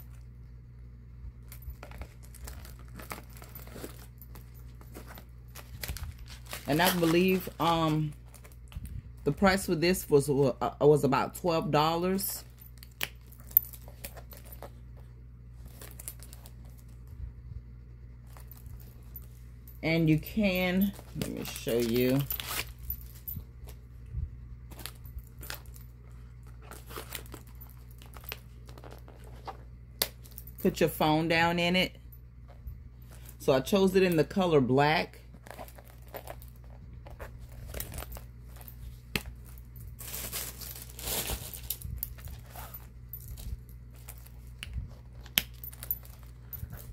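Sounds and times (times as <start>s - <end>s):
low steady hum: 0.0s - 46.9s
bag rustling: 1.5s - 9.3s, 12.4s - 15.0s, 15.6s - 17.1s, 18.2s - 23.9s, 24.6s - 29.6s, 35.3s - 46.9s.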